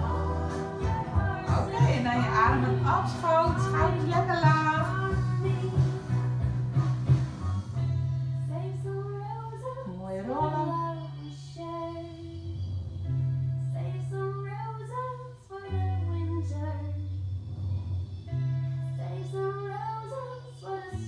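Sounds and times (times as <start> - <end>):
person singing: 0.0 - 6.4, 18.3 - 21.0
held bass notes: 0.0 - 21.0.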